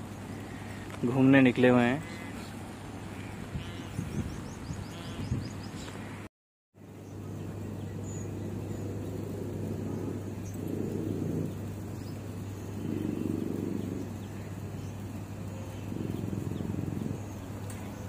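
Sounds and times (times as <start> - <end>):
steady low hum: 6.0 - 18.0
dove cooing: 8.7 - 18.0.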